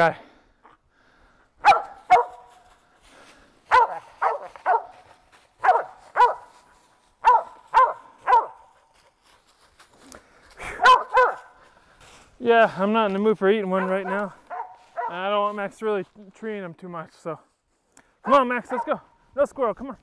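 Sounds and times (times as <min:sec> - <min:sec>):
dog barking: 0:01.6 - 0:02.6, 0:03.7 - 0:05.0, 0:05.6 - 0:06.5, 0:07.2 - 0:08.8, 0:10.8 - 0:11.6, 0:13.8 - 0:15.2, 0:18.2 - 0:19.0.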